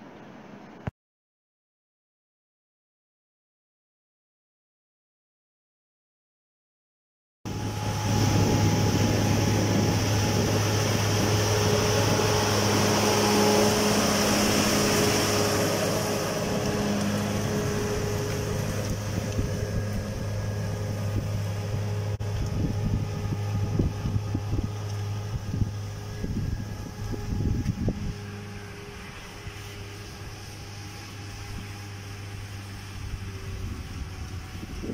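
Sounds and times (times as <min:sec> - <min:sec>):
tractor diesel engine running: 0:07.5 - 0:34.9
wind gusts on microphone: 0:07.5 - 0:34.9.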